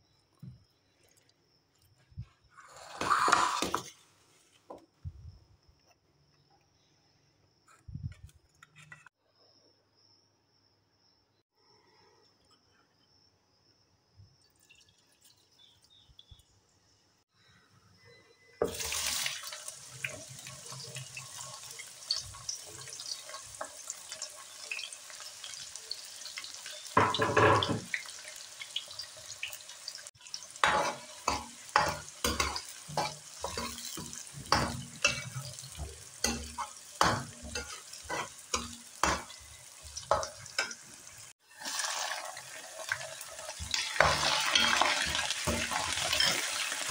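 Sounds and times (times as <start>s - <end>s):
steel ladle scraping a pan: 2.6s - 4.0s, 30.3s - 40.8s, 43.6s - 46.9s
onions sizzling in hot oil: 18.6s - 46.9s.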